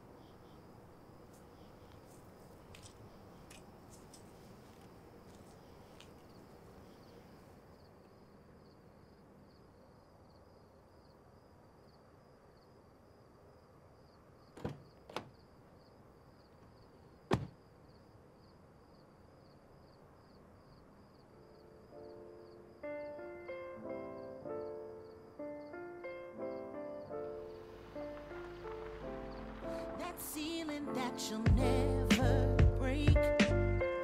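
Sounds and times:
insects chirping: 0.0s - 32.0s
sharp knocks: 17.3s - 17.6s
piano music: 21.9s - 34.0s.

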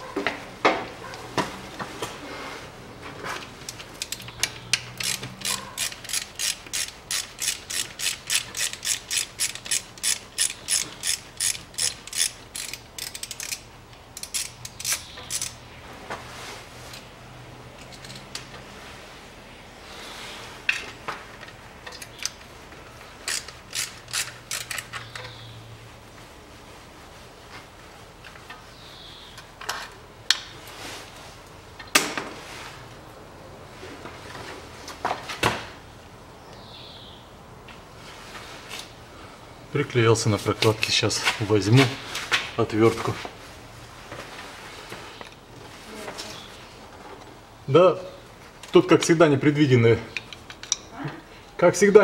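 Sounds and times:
socket ratchet clicking: 3.8s - 15.6s, 23.2s - 25.4s.

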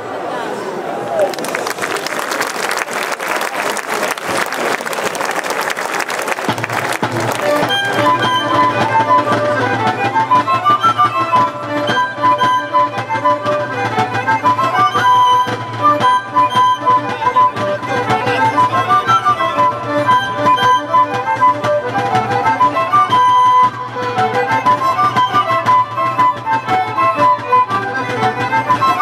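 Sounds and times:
violin playing quick tune: 6.4s - 29.0s.

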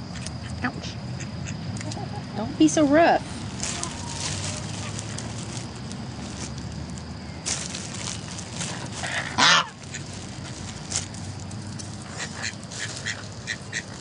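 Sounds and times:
chickens clucking: 0.1s - 2.8s, 3.5s - 5.3s, 8.6s - 11.1s, 12.0s - 14.0s
goose honking: 9.0s - 10.0s.

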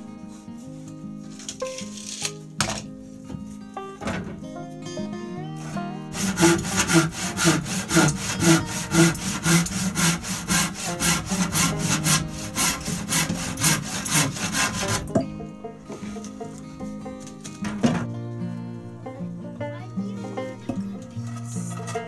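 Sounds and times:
handsaw cutting wood: 5.6s - 15.2s.

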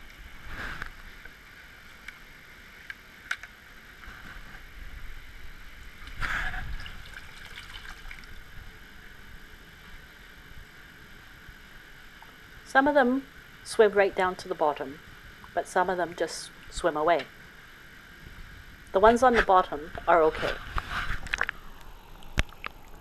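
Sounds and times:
trickle of running water: 5.9s - 9.1s, 20.7s - 23.0s
water splashing and pouring: 6.4s - 8.5s.

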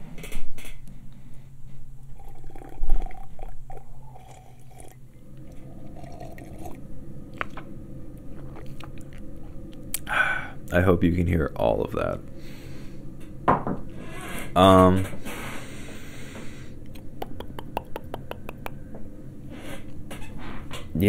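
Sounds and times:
person sipping and slurping: 2.2s - 7.6s, 8.2s - 10.6s
swallowing: 2.2s - 10.2s, 16.9s - 18.9s
mouth clicks: 16.8s - 18.8s.

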